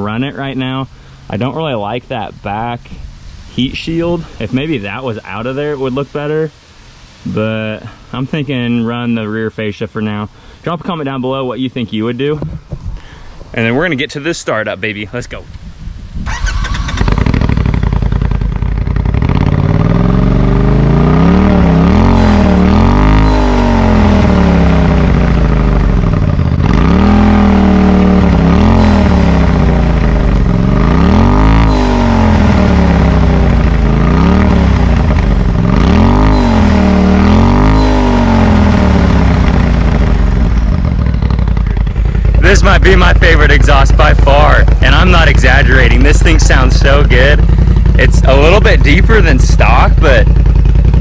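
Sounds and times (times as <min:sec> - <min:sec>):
engine idling and revving: 0:16.2 - 0:51.0.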